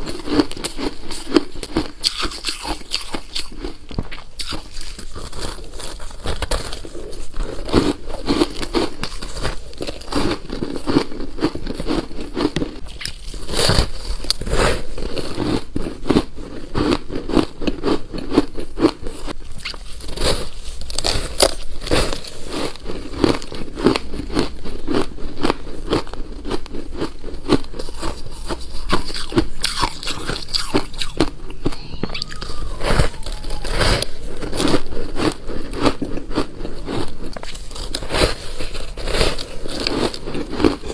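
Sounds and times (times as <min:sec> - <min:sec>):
crunching ice: 0:00.0 - 0:31.3, 0:33.0 - 0:40.9.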